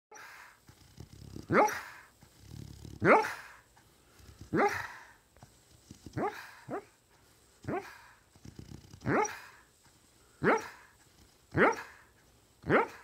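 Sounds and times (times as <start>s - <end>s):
dog breathing softly: 0.2s - 12.6s
dog barking muffled: 1.4s - 2.0s, 4.4s - 5.1s, 6.1s - 7.0s, 7.6s - 8.1s, 9.0s - 9.6s, 10.4s - 10.9s, 11.5s - 13.0s.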